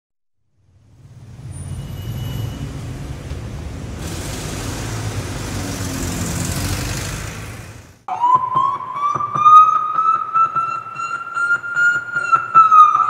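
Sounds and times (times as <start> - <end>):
siren wail rising: 8.1 - 13.0.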